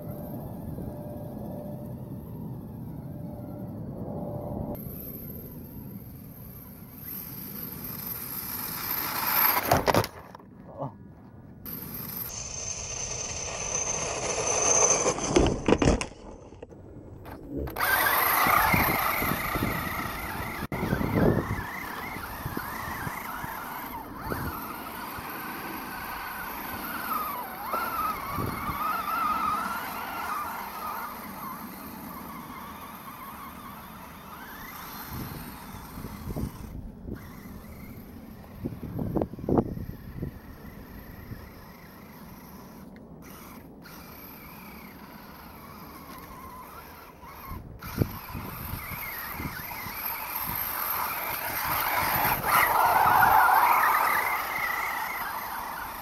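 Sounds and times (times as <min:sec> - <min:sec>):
electric motor whining: 0:11.7 - 0:16.6, 0:17.2 - 0:56.0.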